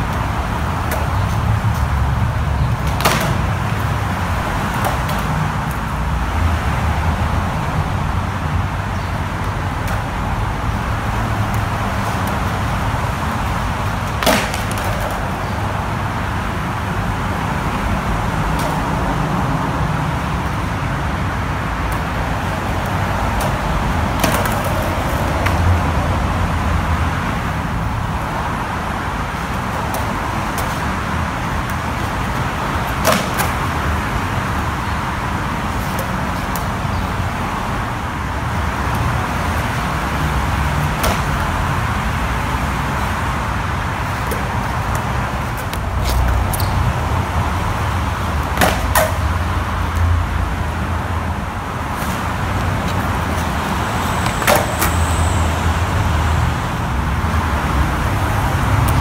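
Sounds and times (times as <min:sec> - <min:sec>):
sharp skateboard clack: 0:00.0 - 0:05.9, 0:11.2 - 0:16.6, 0:18.3 - 0:19.3, 0:21.9 - 0:25.8, 0:29.3 - 0:34.6, 0:35.3 - 0:36.9, 0:40.8 - 0:41.6, 0:44.0 - 0:46.9, 0:47.8 - 0:50.0, 0:51.9 - 0:55.2
skateboard wheels rolling on concrete: 0:00.0 - 0:59.0
traffic rumble and road hiss: 0:00.0 - 0:59.0.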